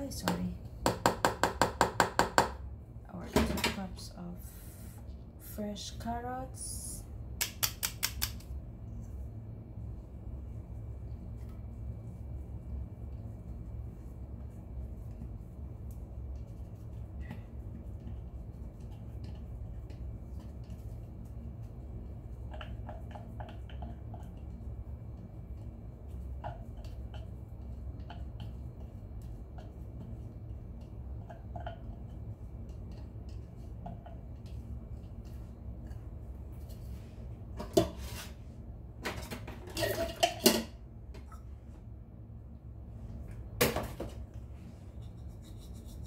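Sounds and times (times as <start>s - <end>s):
clatter of glass and utensils: 39.1s - 40.7s.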